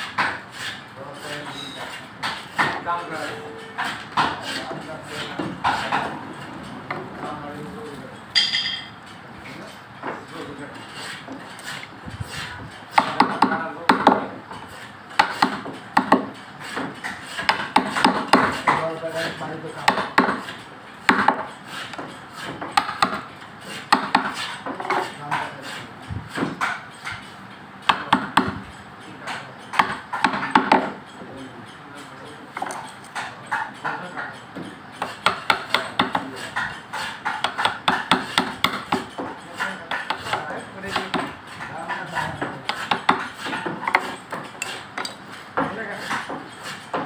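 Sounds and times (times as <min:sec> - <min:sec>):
mallet tapping chisel into wood: 0:12.9 - 0:14.2, 0:15.2 - 0:18.8, 0:19.8 - 0:20.5, 0:21.1 - 0:23.2, 0:23.9 - 0:24.4, 0:27.9 - 0:28.6, 0:29.7 - 0:31.0, 0:35.0 - 0:36.3, 0:37.0 - 0:41.3, 0:42.4 - 0:46.4.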